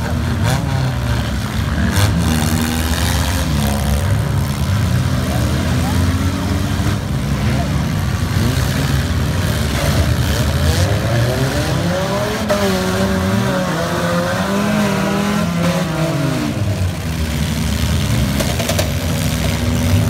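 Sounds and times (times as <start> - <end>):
car engines running hard: 0.0 - 20.0
engine revving: 0.0 - 20.0.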